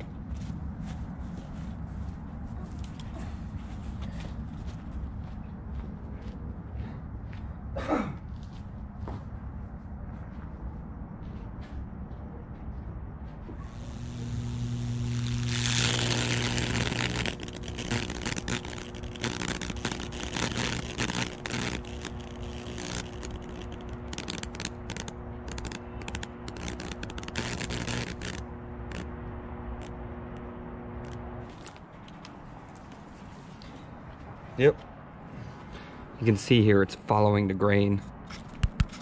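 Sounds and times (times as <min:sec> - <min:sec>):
transformer humming: 0:13.5 - 0:32.0
loud sizzling hiss: 0:13.6 - 0:29.0
electric arc crackling snaps: 0:13.6 - 0:31.8.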